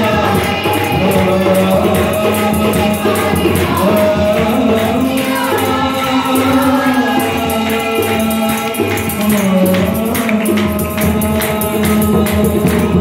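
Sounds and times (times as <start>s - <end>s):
hand drums beat: 0.0s - 13.0s
man and women singing: 0.0s - 13.0s.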